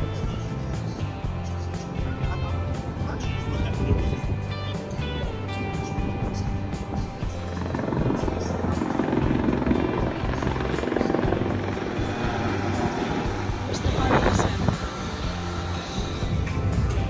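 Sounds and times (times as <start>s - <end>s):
music with steady beat: 0.0s - 17.0s
loud rushing rumbling noise: 6.6s - 16.9s.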